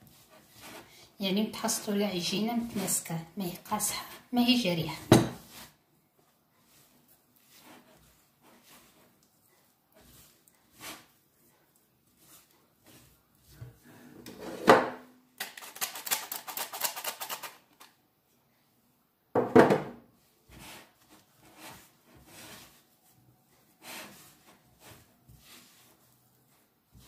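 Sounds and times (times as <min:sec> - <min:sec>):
dough rustling and tapping: 0:00.0 - 0:14.1, 0:19.4 - 0:27.0
bowl knocking on countertop: 0:19.4 - 0:20.0.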